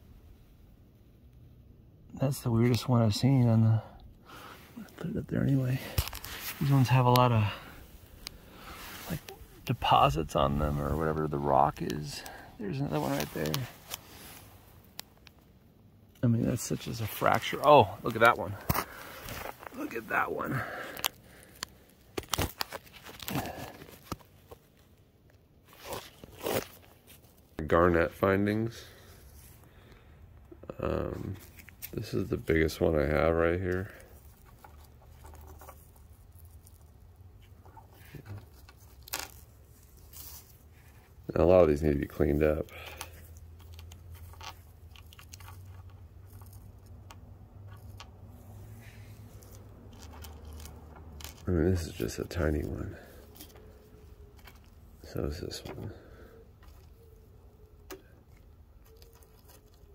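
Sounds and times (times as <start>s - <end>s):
low steady hum: 0.0s - 59.9s
gravel crunching: 4.3s - 15.4s, 16.2s - 24.8s
soft rustle: 4.3s - 30.2s, 30.8s - 59.9s.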